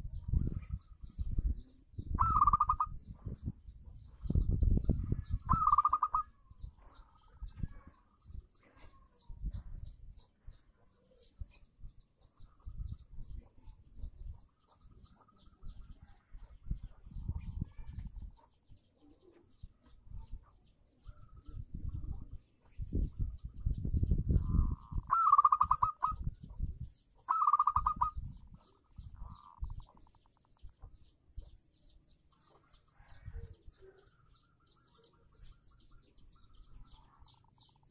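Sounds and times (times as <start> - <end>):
dove cooing: 2.2 - 2.9, 5.5 - 6.3, 24.4 - 26.2, 27.3 - 28.2.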